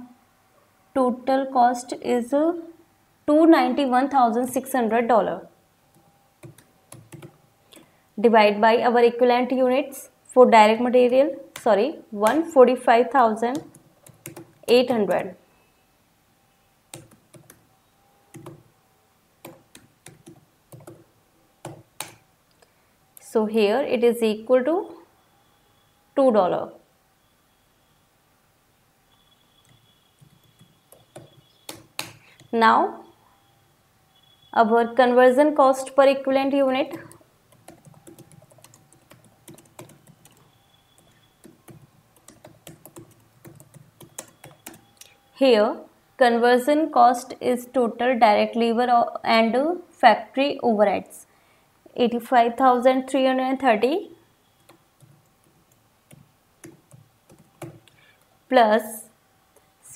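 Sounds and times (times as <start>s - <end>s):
typing on computer keyboard: 5.9s - 7.9s, 13.5s - 15.2s, 16.9s - 17.6s, 18.3s - 18.7s, 19.4s - 22.2s, 29.6s - 32.6s, 36.9s - 45.2s, 54.6s - 58.3s.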